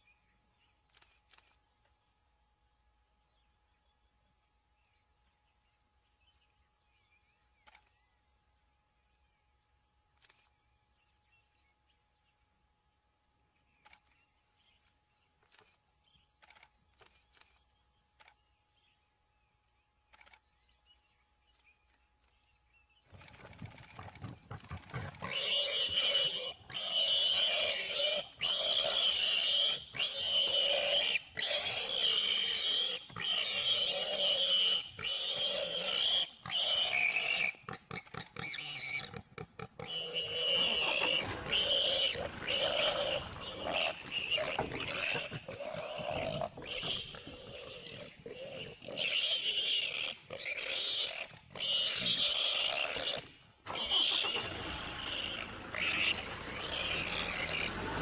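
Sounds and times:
warthog squealing: 24.7s - 58.0s.

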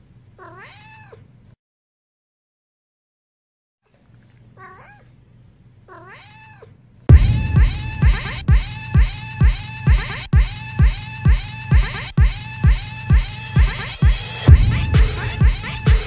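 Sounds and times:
cat meowing: 0.4s - 1.3s, 4.5s - 5.1s, 5.9s - 6.8s
loud music with steady beat: 7.1s - 16.0s.

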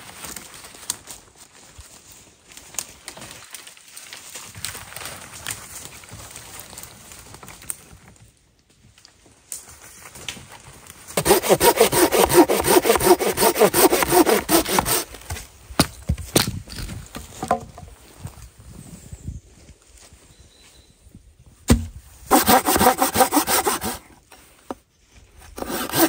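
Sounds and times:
hand saw cutting wood: 11.2s - 15.2s, 22.3s - 24.1s, 25.5s - 26.0s.

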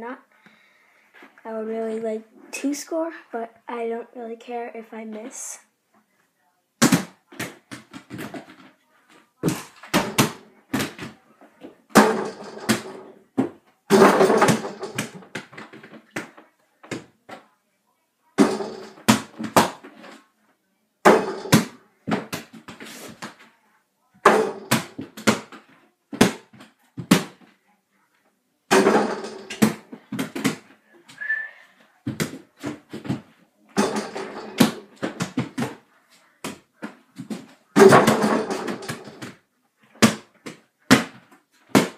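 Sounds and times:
ball bouncing against hoop and door: 9.4s - 11.2s, 11.9s - 17.4s, 18.4s - 20.2s, 21.1s - 23.4s, 24.2s - 27.5s, 28.7s - 30.7s, 32.1s - 35.8s, 36.4s - 39.4s.

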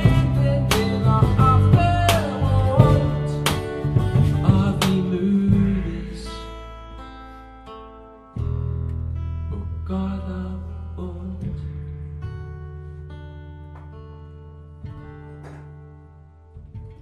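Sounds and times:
person singing: 0.0s - 6.6s
electric guitar: 0.0s - 17.0s
strummed acoustic guitar: 0.0s - 17.0s.

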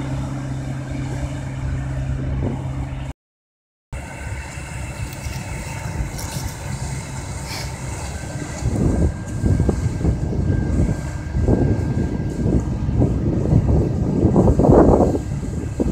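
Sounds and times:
cotton picker engine drone: 0.0s - 3.1s, 4.0s - 15.9s
machine whine: 0.0s - 3.1s, 4.0s - 15.9s
wind on microphone: 4.0s - 15.9s.

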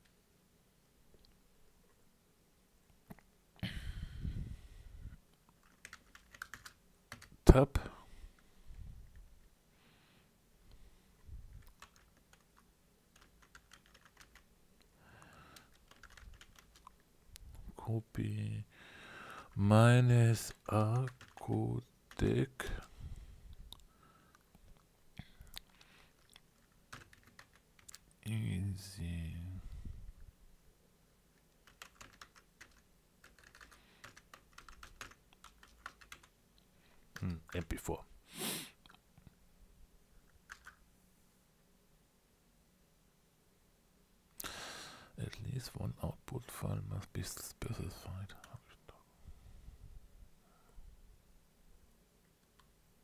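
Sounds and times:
computer keyboard key clicks: 5.6s - 7.3s, 15.8s - 16.8s, 40.5s - 40.8s.

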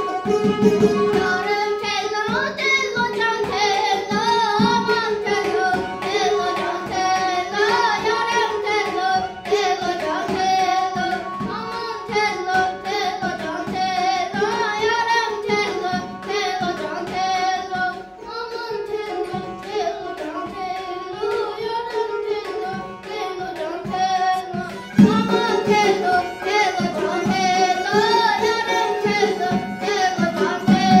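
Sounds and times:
child singing: 0.0s - 31.0s
instrumental accompaniment: 0.0s - 31.0s
steady drum beat: 24.6s - 31.0s.

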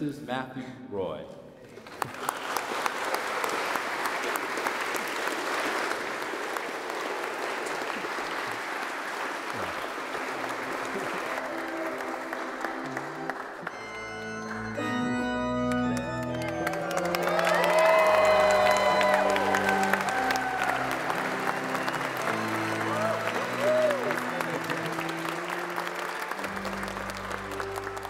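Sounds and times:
congregation applauding: 1.7s - 28.0s
church organ chords: 10.6s - 28.0s
deep organ bass notes: 12.7s - 17.0s.

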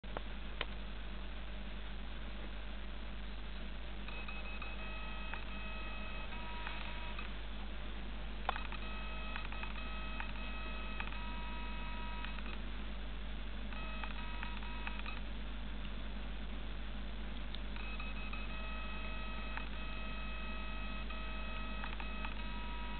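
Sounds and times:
steady low hum: 0.0s - 22.9s
steady electronic tones: 4.0s - 7.3s, 8.5s - 12.5s, 17.7s - 22.9s.

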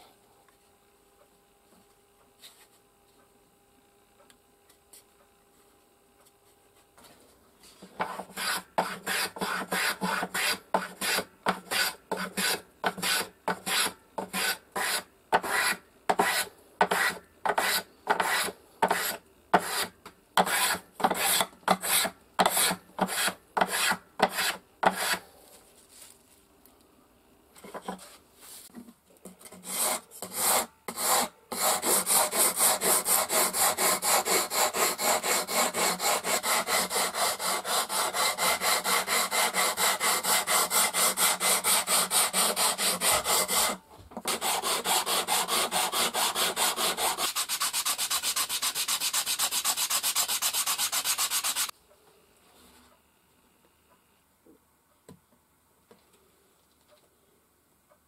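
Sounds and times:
tool scraping along wooden board: 7.9s - 25.2s, 29.4s - 51.7s
block rubbed on sandpaper: 8.0s - 25.2s, 29.6s - 51.7s.

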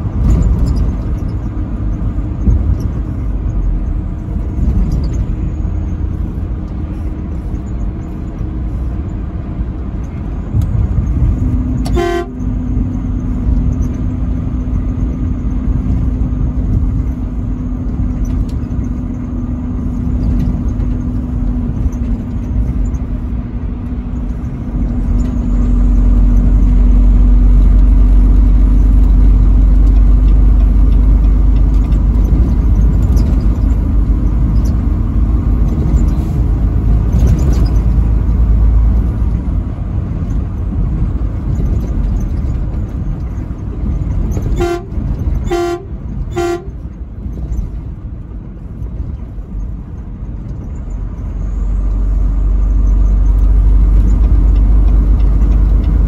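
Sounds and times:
low rumble: 0.0s - 56.0s
truck engine and road drone: 0.0s - 56.0s
short horn toot: 11.8s - 12.5s, 44.5s - 46.8s.

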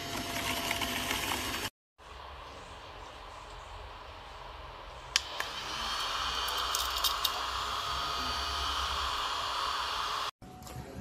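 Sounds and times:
small vacuum motor whirring: 5.2s - 10.4s.

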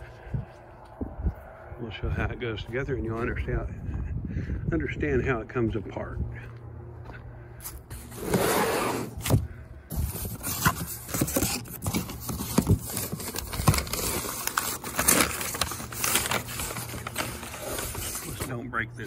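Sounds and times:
cardboard box scraping: 7.9s - 18.6s
packing paper crinkling: 9.9s - 18.6s.

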